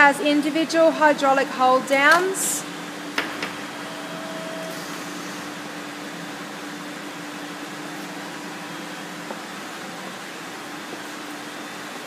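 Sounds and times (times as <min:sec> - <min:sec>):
hydraulic pump motor hum: 0:02.1 - 0:12.0
brief higher tone: 0:03.8 - 0:04.9.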